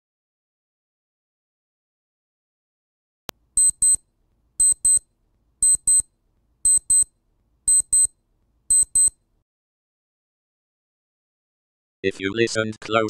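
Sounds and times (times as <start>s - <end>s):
high-pitched electronic beeps: 3.6s - 4.0s, 4.6s - 5.0s, 5.6s - 6.0s, 6.7s - 7.1s, 7.7s - 8.1s, 8.7s - 9.1s.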